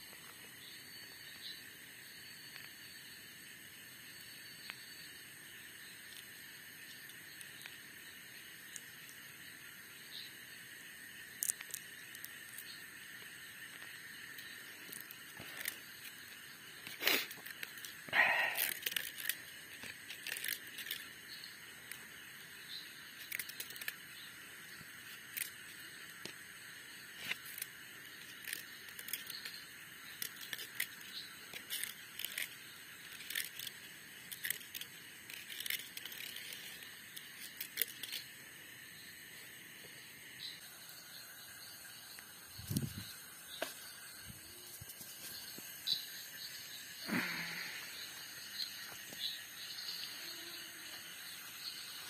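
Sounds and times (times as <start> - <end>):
insects trilling: 0.0 - 52.0
fishing line clicks and rustles: 13.6 - 22.2, 23.1 - 24.1, 24.8 - 26.5, 27.2 - 38.3.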